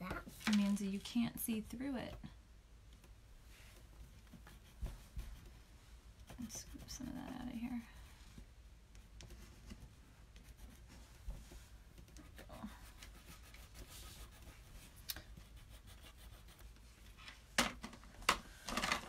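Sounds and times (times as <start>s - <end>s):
pencil scratching on paper: 4.2s - 5.6s, 6.2s - 8.2s, 9.0s - 11.1s, 11.9s - 16.8s.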